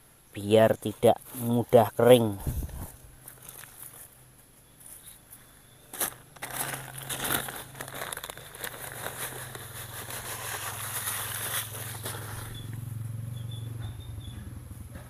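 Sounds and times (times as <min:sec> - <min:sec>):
dry soil pouring rustle: 0:05.9 - 0:12.7.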